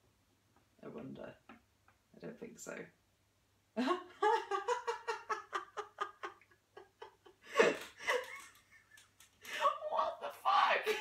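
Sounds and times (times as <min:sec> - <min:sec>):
woman giggling: 0:03.8 - 0:09.9.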